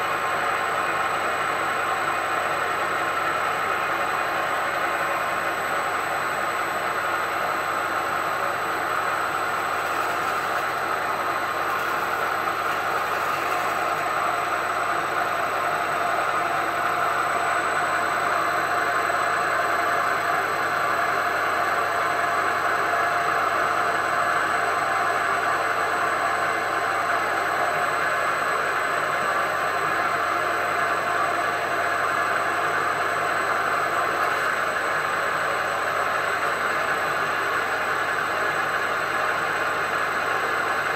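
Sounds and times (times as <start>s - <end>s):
milling machine spindle running: 0.0s - 24.3s
drill bit cutting steel: 9.5s - 14.6s.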